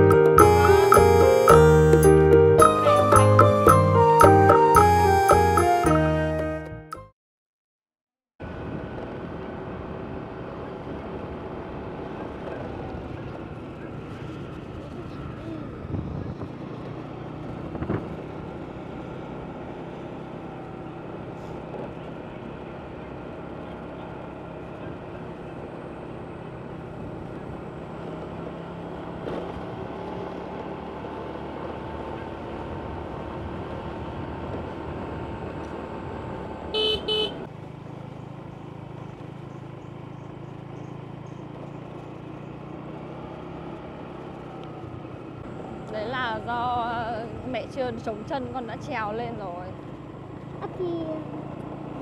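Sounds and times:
road traffic noise: 0.0s - 7.1s, 8.4s - 52.0s
vehicle horn beeps: 36.7s - 37.5s.

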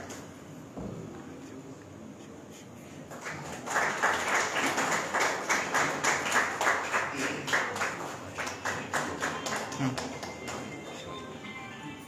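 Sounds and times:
group applauding: 3.1s - 11.1s.

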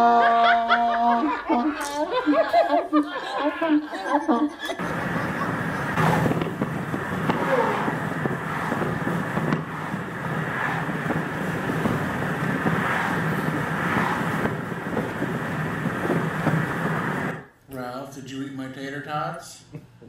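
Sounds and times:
car driving at road speed: 4.8s - 17.4s
wind rushing past open window: 4.8s - 17.5s.

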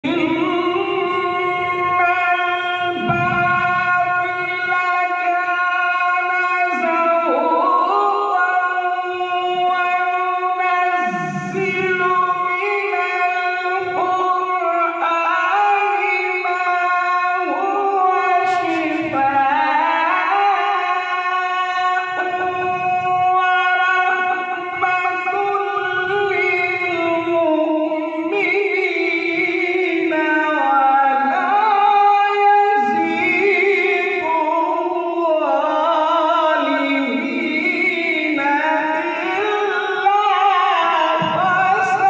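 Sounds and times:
man reciting melodically: 0.0s - 42.0s.

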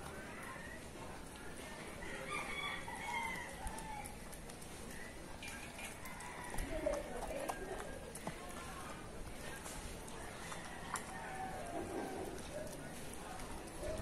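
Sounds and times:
rooster crowing: 2.0s - 4.2s.

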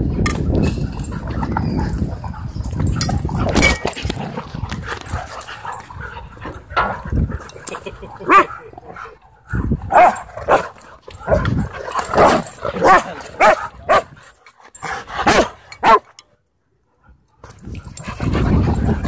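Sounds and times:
dogs barking and yipping: 0.0s - 16.2s, 17.4s - 19.0s.

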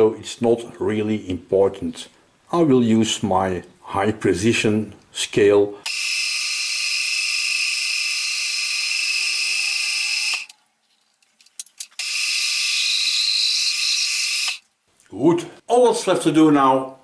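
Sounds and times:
milling machine spindle whine: 5.9s - 10.5s, 12.0s - 14.6s.

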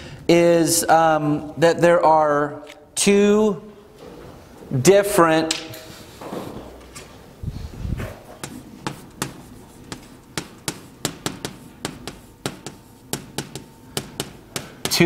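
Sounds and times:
chalk tapping on chalkboard: 8.4s - 15.0s.

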